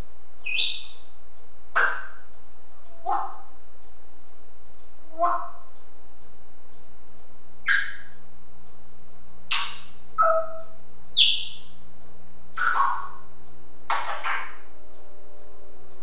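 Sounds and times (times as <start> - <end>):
parrot squawking and chirping: 0.5 - 0.9, 1.8 - 2.2, 3.0 - 3.4, 5.2 - 5.6, 7.6 - 8.1, 9.5 - 10.6, 11.2 - 11.6, 12.6 - 13.2.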